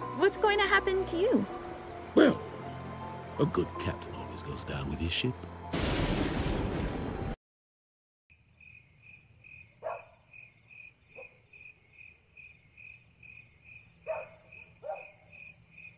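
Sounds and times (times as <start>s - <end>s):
crickets chirping: 8.3s - 15.9s.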